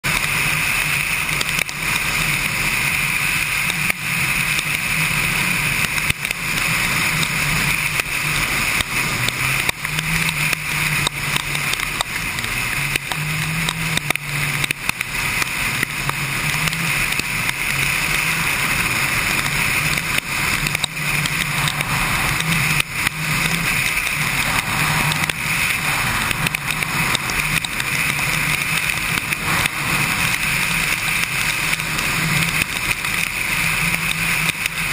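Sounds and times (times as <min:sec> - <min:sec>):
motorcycle engine running: 0:00.0 - 0:34.9
wet road noise: 0:00.0 - 0:34.9
wind rush: 0:15.1 - 0:34.9.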